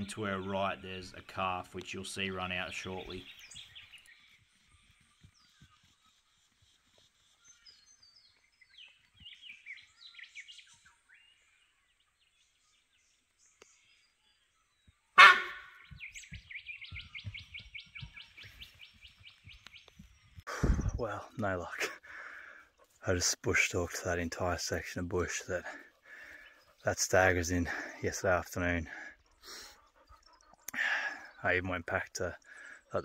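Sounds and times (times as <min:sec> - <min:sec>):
birds chirping: 0:00.0 - 0:33.0
footsteps on track: 0:03.8 - 0:07.2, 0:14.8 - 0:20.8
bird chattering trill: 0:15.2 - 0:16.0.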